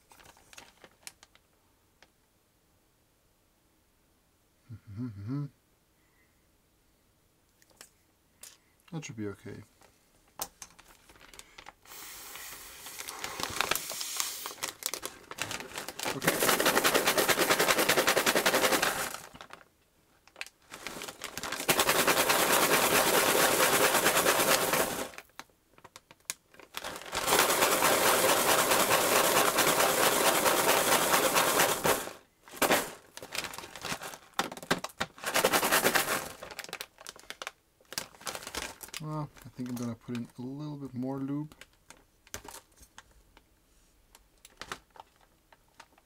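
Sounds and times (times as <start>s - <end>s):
plastic bag crinkling: 0.0s - 1.5s, 10.5s - 43.4s, 44.1s - 46.0s
plastic parts rattling in bag: 10.6s - 11.8s, 12.9s - 19.7s, 20.3s - 40.4s, 41.4s - 43.1s, 44.4s - 46.0s.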